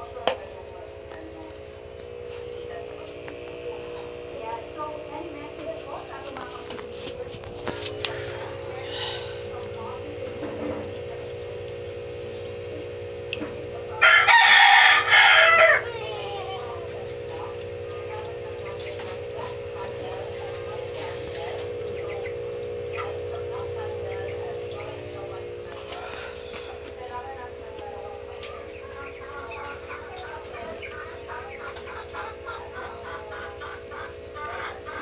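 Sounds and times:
steady low hum: 0:00.0 - 0:14.0, 0:14.9 - 0:35.0
rooster crowing: 0:13.9 - 0:16.7.

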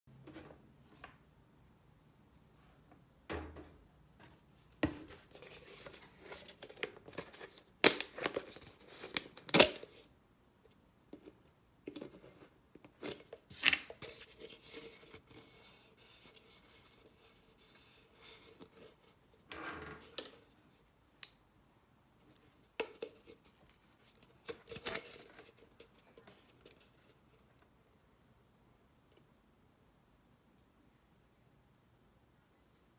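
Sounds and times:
plastic cups tapping and scraping: 0:22.5 - 0:27.5.

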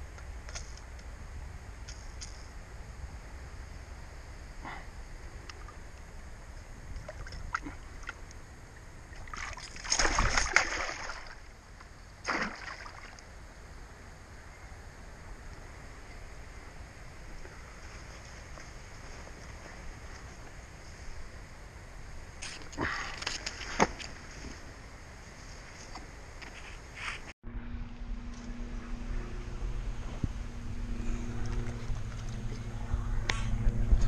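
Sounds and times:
fish splashing in water: 0:09.1 - 0:11.5, 0:12.2 - 0:13.2.

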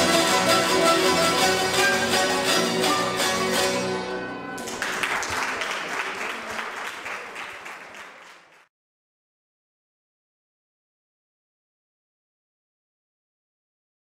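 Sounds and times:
zithers playing chords: 0:00.0 - 0:04.7
audience applause: 0:04.6 - 0:08.7.

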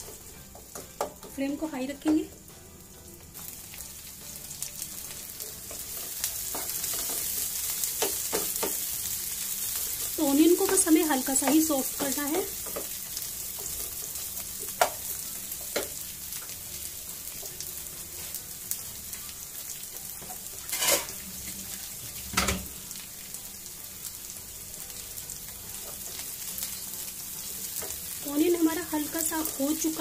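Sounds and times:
onions sizzling in hot oil: 0:00.0 - 0:30.0
spatula scraping and knocking pan: 0:20.2 - 0:21.2.

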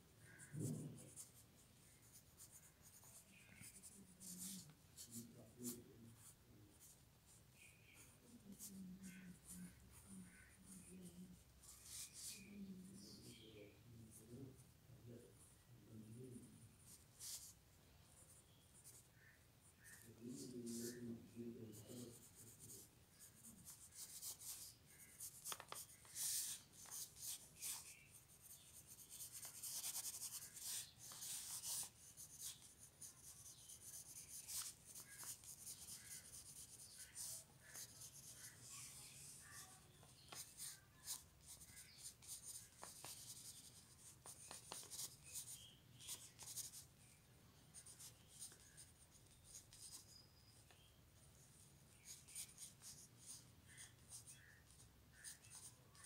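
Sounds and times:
pencil sketching on paper: 0:21.7 - 0:46.8.

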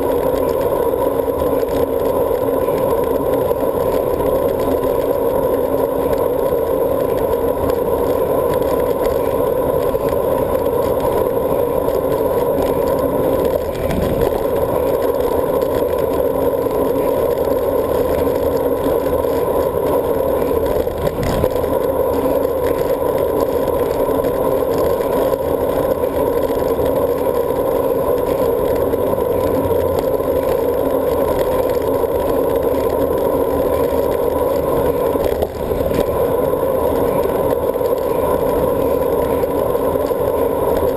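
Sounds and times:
bike tyre noise: 0:00.0 - 0:40.9
muffled wind rush: 0:09.9 - 0:16.5, 0:20.2 - 0:23.4.

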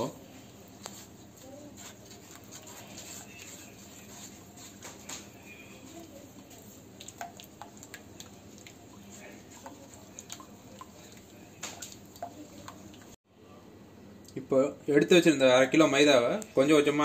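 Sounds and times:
spatula stirring wet batter: 0:00.0 - 0:13.2.

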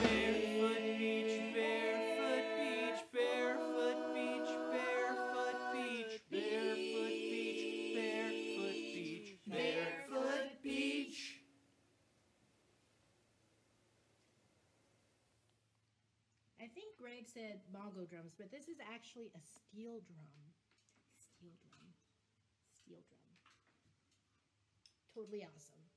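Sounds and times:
a cappella group singing: 0:00.0 - 0:11.4.

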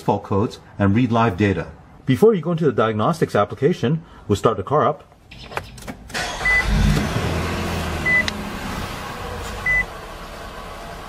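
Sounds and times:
car engine starting and idling: 0:05.3 - 0:11.0.

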